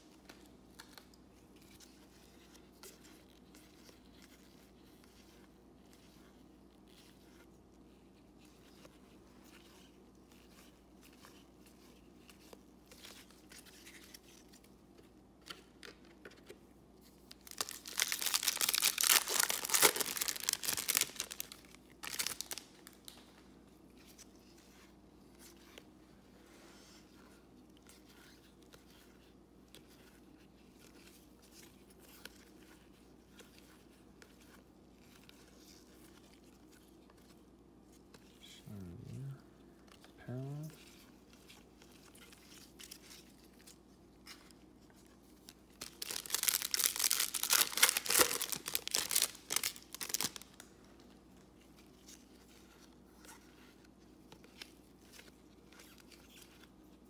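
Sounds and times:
cards shuffled by hand: 0.1 - 23.4, 39.8 - 57.0
wrapper tearing and crinkling: 17.3 - 23.1, 45.7 - 50.7.

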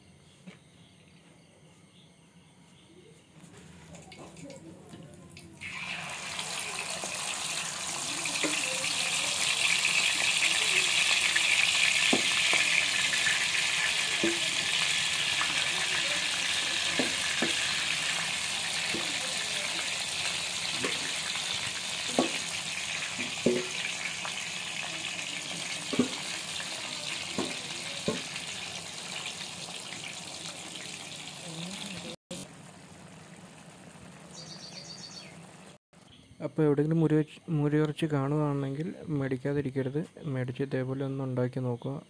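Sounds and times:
meat sizzling in oil: 5.6 - 34.4
metal spoon knocking on pan: 23.2 - 23.9.

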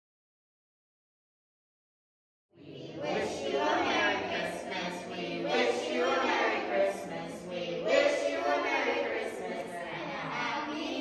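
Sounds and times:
choir singing: 2.6 - 11.0.

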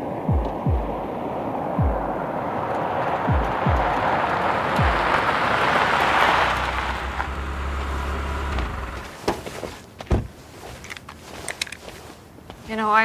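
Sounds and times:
car engine running low: 0.3 - 9.2
car rolling over gravel: 2.4 - 9.9
car door click and clunk: 10.1 - 10.3.

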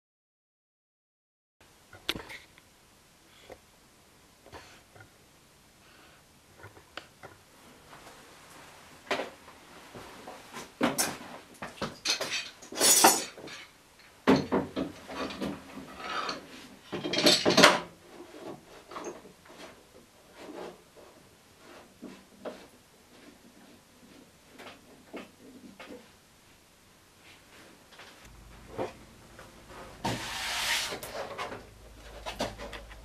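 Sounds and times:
metal and wood parts clattering: 10.8 - 17.9.

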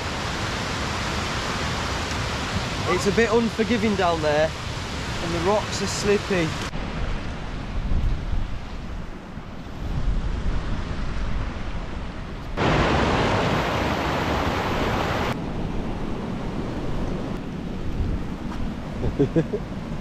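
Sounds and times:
stream rushing over rocks: 0.0 - 6.8, 12.6 - 15.4
wind buffeting microphone: 6.6 - 20.0.

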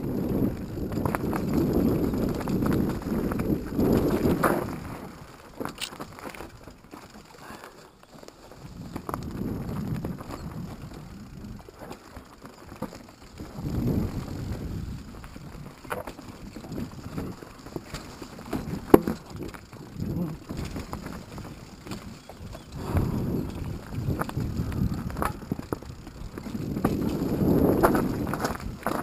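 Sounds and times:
wind on microphone: 0.0 - 5.3, 8.6 - 11.7, 13.4 - 15.7, 18.6 - 29.0
mountain bike rattling over stones: 0.0 - 29.0.

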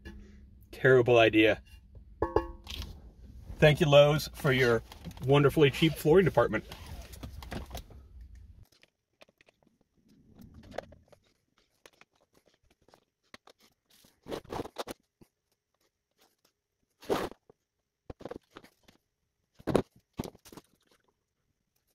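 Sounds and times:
plastic parts clattering: 4.4 - 8.0.

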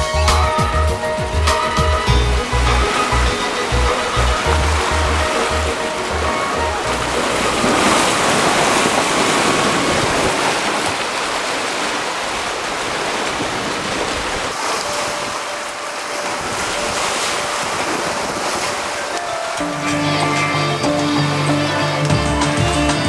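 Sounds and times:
water rushing past hulls: 0.0 - 23.0
wind buffeting microphone: 1.0 - 19.1.

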